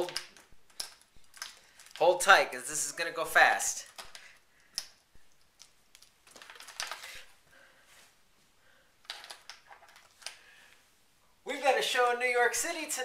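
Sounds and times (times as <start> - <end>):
handling clicks and rustles: 0.0 - 7.4, 9.0 - 10.4.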